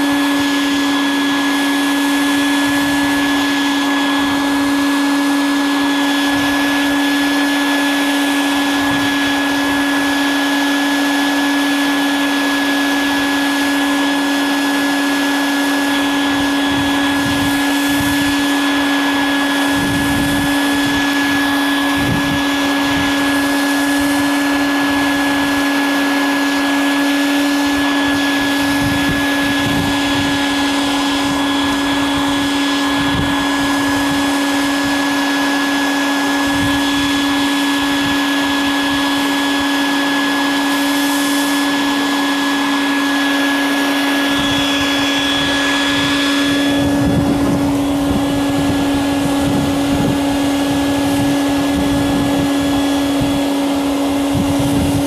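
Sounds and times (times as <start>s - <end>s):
vacuum motor whine: 0.0s - 55.0s.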